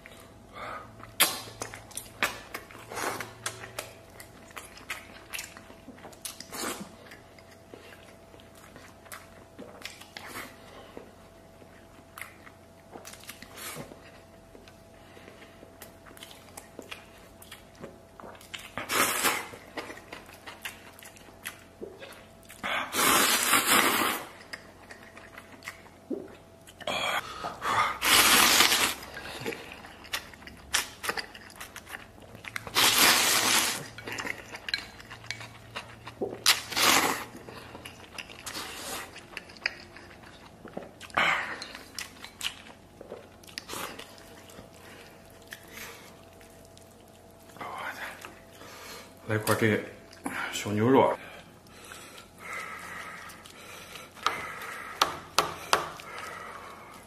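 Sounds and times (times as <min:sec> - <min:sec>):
quiet chewing: 0:00.0 - 0:22.7, 0:23.6 - 0:27.6, 0:28.5 - 0:50.4, 0:51.3 - 0:57.0
loud noodle slurps: 0:22.9 - 0:24.3, 0:27.9 - 0:29.0, 0:32.7 - 0:33.8, 0:36.6 - 0:37.3.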